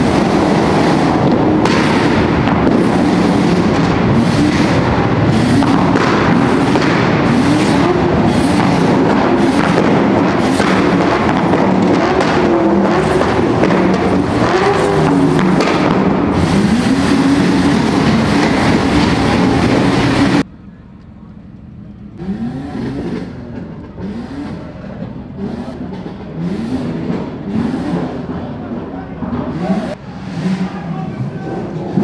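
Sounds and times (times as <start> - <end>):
exhaust pops and bangs: 0.0 - 28.4
car engines revving in a tunnel: 0.0 - 32.0.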